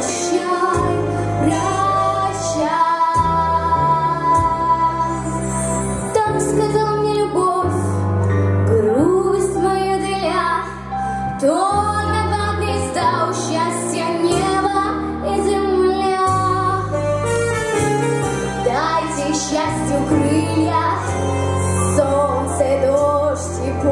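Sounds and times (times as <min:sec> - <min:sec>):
girl singing: 0:00.0 - 0:05.4, 0:06.1 - 0:07.8, 0:08.8 - 0:10.8, 0:11.4 - 0:16.9, 0:18.6 - 0:21.2
instrumental backing track: 0:00.0 - 0:23.9.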